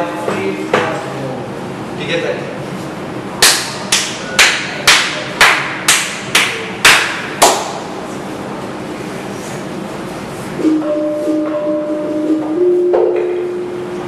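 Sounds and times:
hand claps: 3.4s - 7.8s.

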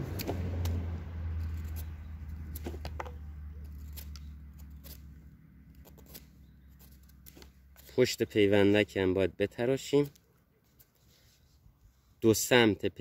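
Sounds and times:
low hum: 0.0s - 7.8s
knife shaving wood: 0.0s - 8.1s.

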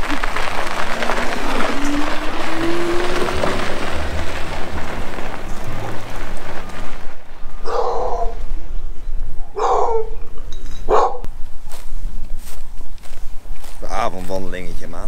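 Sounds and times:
rushing noise: 0.0s - 9.5s
dog barking: 7.6s - 8.4s, 9.6s - 10.2s, 10.9s - 11.3s.

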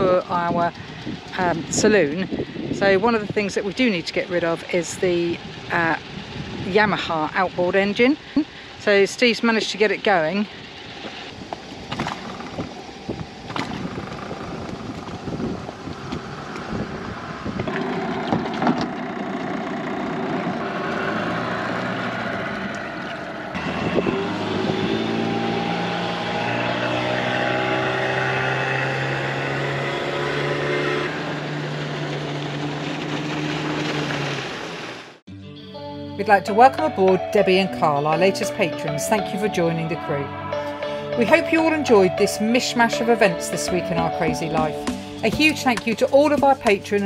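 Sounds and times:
outboard motor running: 0.0s - 35.2s, 39.6s - 47.0s.

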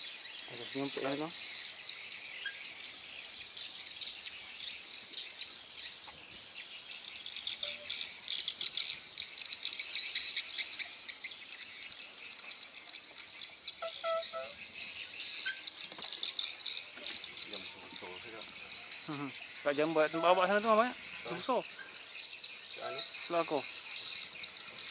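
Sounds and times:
insects chirring: 0.0s - 24.9s
brief pitched call: 13.8s - 14.6s.

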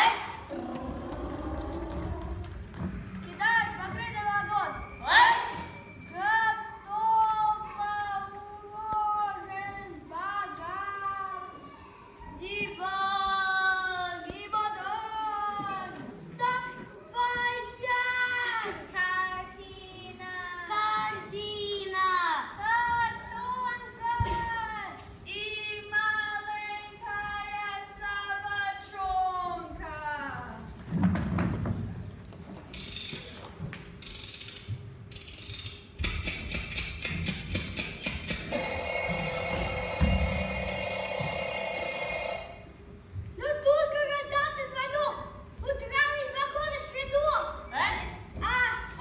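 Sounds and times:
alarm clock winding rasps: 36.5s - 42.8s
alarm bell ringing: 38.0s - 42.8s.

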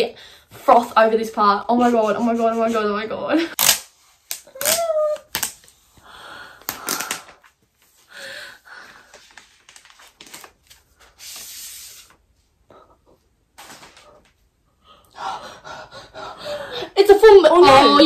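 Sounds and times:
plastic wrap and paper rustling: 8.9s - 12.2s.

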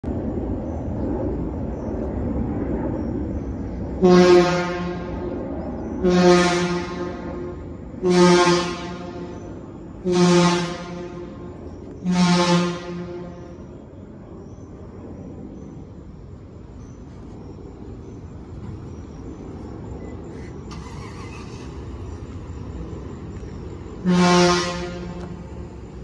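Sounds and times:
engine humming: 0.0s - 26.0s
fire engine air horn blasts: 4.0s - 5.3s, 6.0s - 13.6s, 24.0s - 25.4s.

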